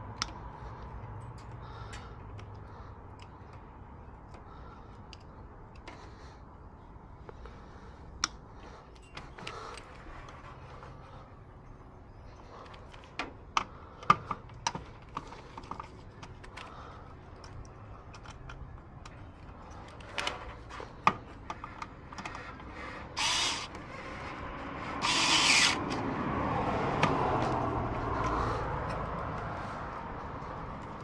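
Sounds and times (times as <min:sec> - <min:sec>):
short rasping bursts: 0:22.9 - 0:23.8, 0:25.0 - 0:25.8.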